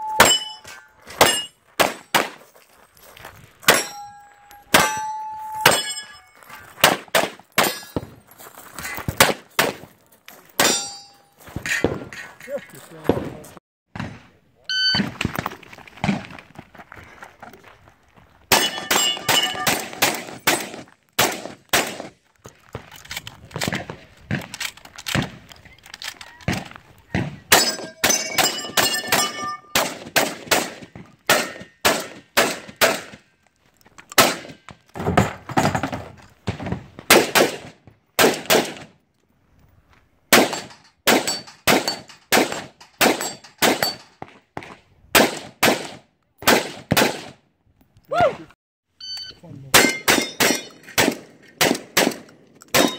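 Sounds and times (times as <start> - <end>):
steel targets ringing: 0.0 - 1.6, 3.7 - 6.8, 7.6 - 8.1, 10.6 - 11.4, 18.5 - 20.6, 27.5 - 29.8, 49.7 - 50.9.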